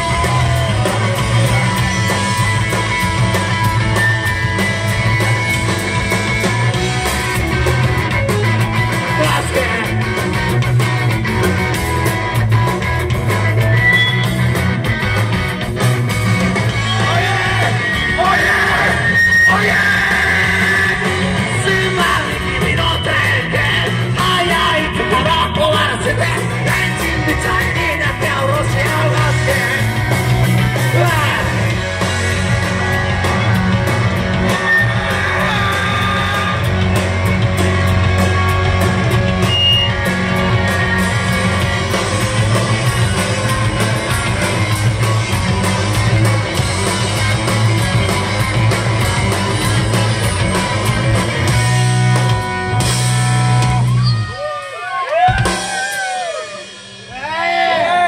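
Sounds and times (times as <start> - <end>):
vocalist singing and yelling: 0.0 - 3.0, 8.8 - 10.3, 16.6 - 37.3
live rock band playing: 0.0 - 58.0.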